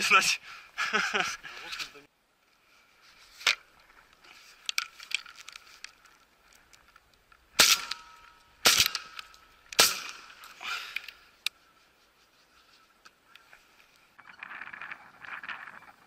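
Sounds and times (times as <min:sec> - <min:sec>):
shotgun shots: 0:07.6 - 0:10.4.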